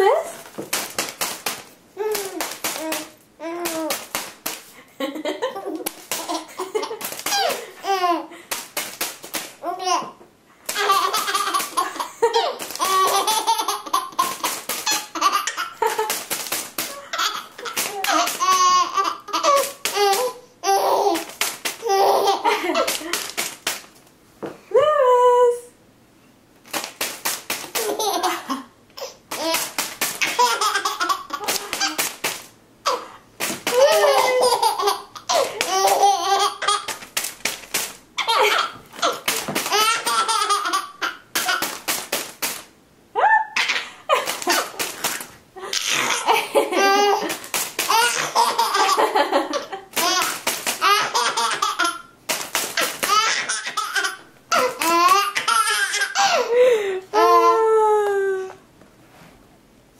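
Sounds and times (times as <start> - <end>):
sharp snaps: 0.7 - 4.7, 8.5 - 9.6, 26.6 - 28.2, 29.0 - 33.9, 34.6 - 38.0, 39.0 - 42.7, 49.9 - 55.6
baby laughing and squealing: 2.0 - 4.1, 6.2 - 8.3, 9.6 - 16.0, 16.9 - 23.0, 29.0 - 32.1, 33.7 - 37.0, 38.2 - 41.8, 45.7 - 47.3, 47.9 - 52.2, 52.8 - 56.5.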